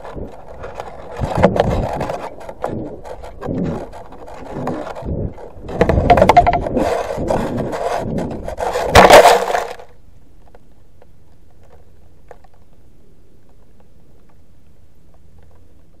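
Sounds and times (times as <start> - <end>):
rocket rattling: 0.0 - 10.0
faint steady hum: 0.0 - 16.0.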